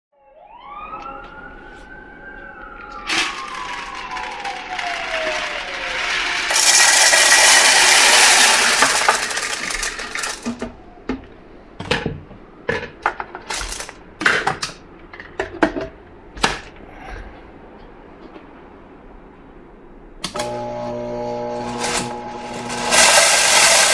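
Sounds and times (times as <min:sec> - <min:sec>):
beans clicking and knocking: 0:02.9 - 0:10.8, 0:12.8 - 0:15.9, 0:22.8 - 0:23.9
dry beans pouring into a jar: 0:03.0 - 0:10.6, 0:22.5 - 0:23.9.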